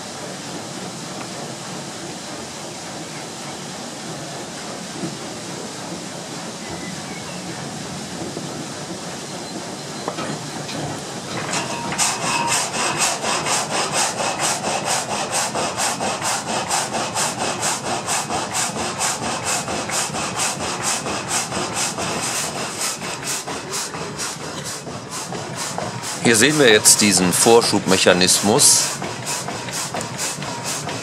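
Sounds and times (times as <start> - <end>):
frame saw rasping through wood: 10.4 - 31.0.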